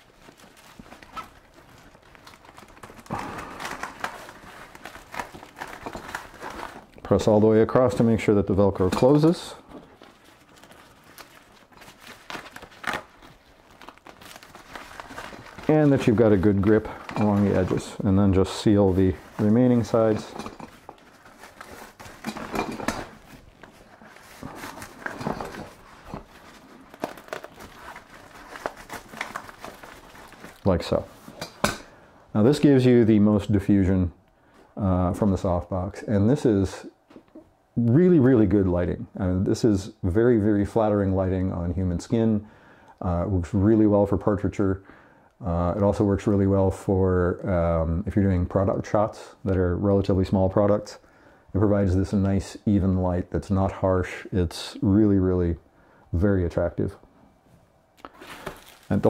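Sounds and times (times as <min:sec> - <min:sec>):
fabric rustling: 0:08.7 - 0:31.7, 0:57.4 - 0:59.0
velcro crackling: 0:10.0 - 0:31.6, 0:58.0 - 0:59.0.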